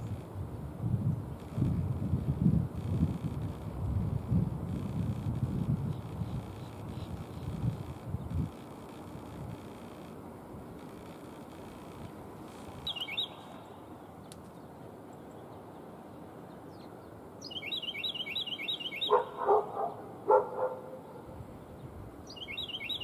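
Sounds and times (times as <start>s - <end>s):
wind: 0.0s - 23.0s
songbird twittering: 5.9s - 8.6s, 11.0s - 23.0s
dog barks: 19.1s - 21.3s.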